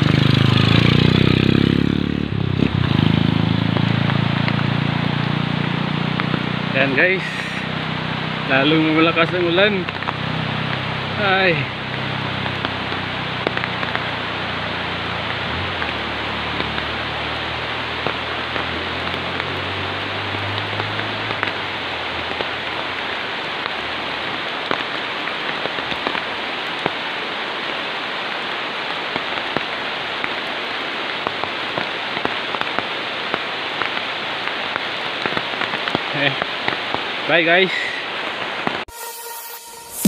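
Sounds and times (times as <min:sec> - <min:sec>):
heavy rain on foliage and road: 0:00.0 - 0:38.9.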